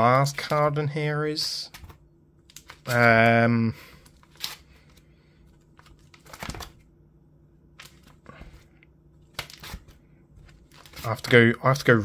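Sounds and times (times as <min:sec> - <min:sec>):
plastic pages crinkling: 0:01.7 - 0:06.8, 0:07.8 - 0:08.7, 0:09.3 - 0:11.4.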